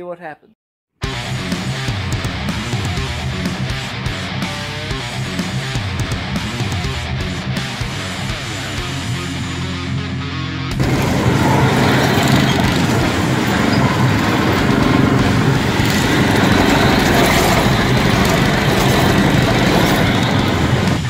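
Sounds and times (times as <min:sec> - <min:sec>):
off-road vehicle engine: 0:10.7 - 0:21.0.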